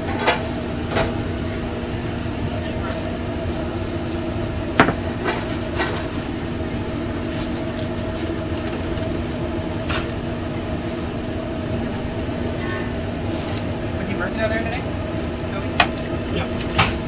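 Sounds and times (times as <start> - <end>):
fries clinking in metal bowl: 0.0 - 1.4, 4.1 - 10.9, 11.9 - 14.8
kitchen equipment humming: 0.0 - 17.0.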